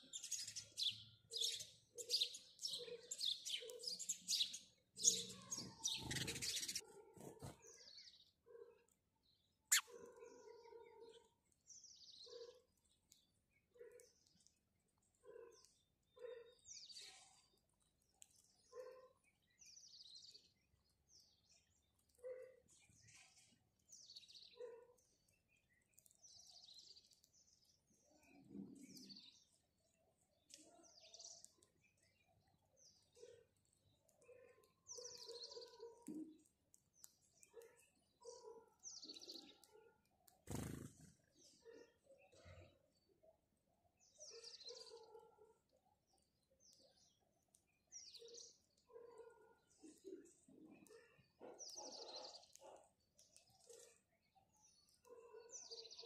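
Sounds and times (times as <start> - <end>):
sparrows chirping: 0.0 - 56.0
low-pitched bird calls: 5.1 - 6.9, 9.7 - 10.4.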